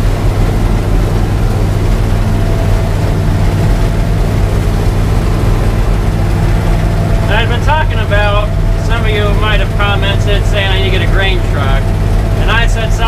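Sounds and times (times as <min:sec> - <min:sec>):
combine engine droning: 0:00.0 - 0:13.0
combine machinery: 0:00.0 - 0:13.0.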